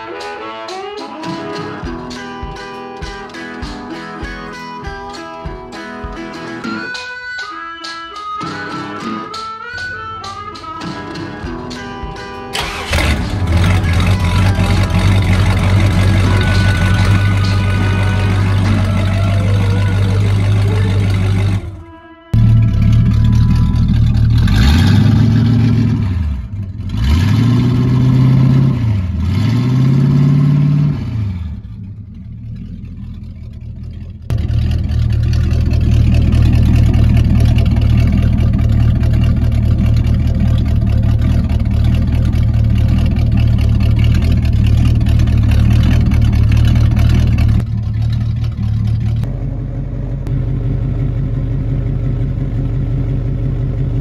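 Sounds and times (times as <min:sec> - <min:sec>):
car engine revving: 0:10.5 - 0:54.0
car engine idling loudly: 0:12.5 - 0:21.8, 0:22.4 - 0:30.4, 0:31.2 - 0:54.0.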